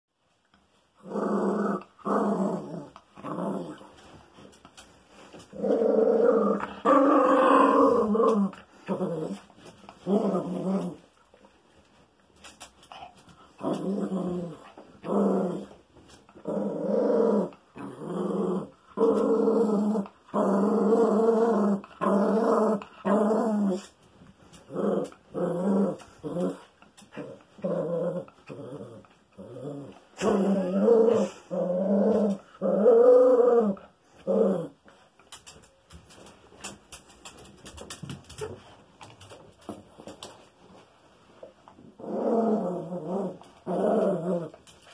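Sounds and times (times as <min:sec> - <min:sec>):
small dog growling: 0:12.9 - 0:15.8, 0:24.6 - 0:34.8, 0:42.0 - 0:44.7.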